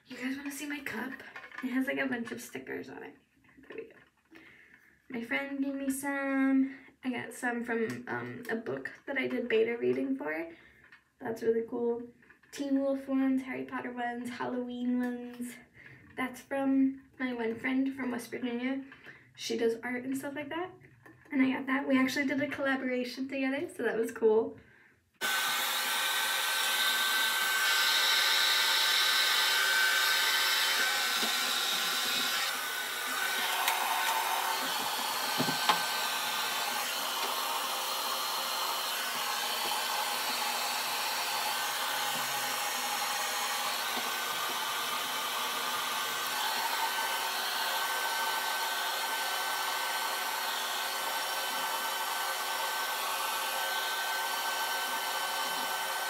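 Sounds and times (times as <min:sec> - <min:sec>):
hair dryer blowing: 0:25.2 - 0:56.0.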